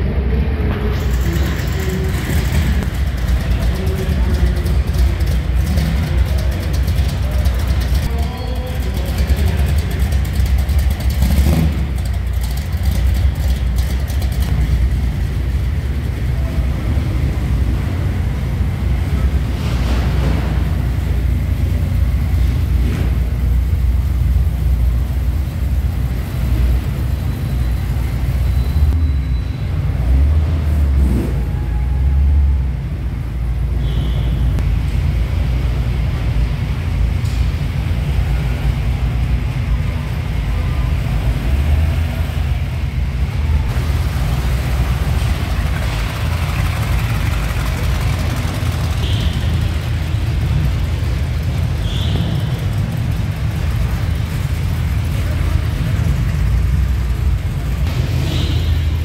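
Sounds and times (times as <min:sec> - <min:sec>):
car engines rumbling low: 0:00.0 - 0:59.0.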